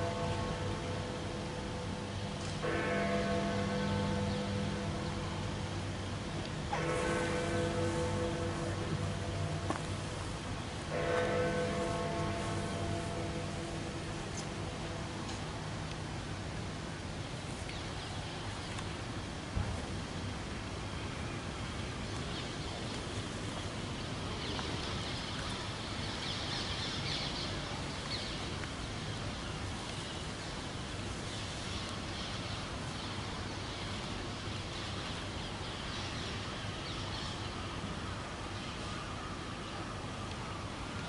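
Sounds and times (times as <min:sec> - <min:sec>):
outdoor background noise: 0:00.0 - 0:41.0.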